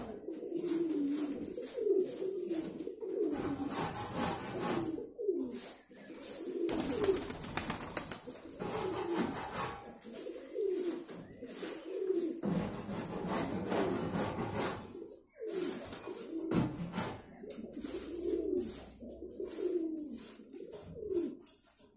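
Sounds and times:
pigeons cooing: 0.0 - 21.9.

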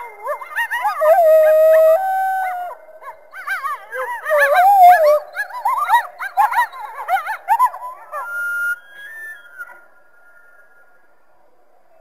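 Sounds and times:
coyote howling: 0.0 - 8.6
coyotes yipping: 0.0 - 9.8.

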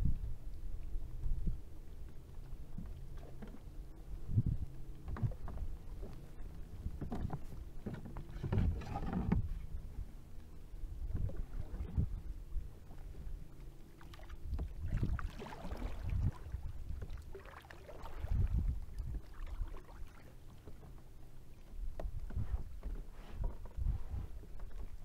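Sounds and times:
small waves lapping against a hull: 0.0 - 25.0.

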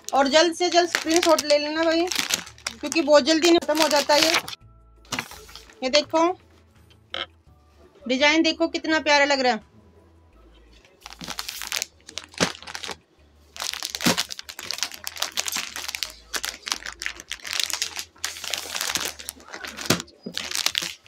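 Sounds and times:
plastic packets crinkling: 0.0 - 5.8, 11.0 - 13.0, 13.6 - 21.0.

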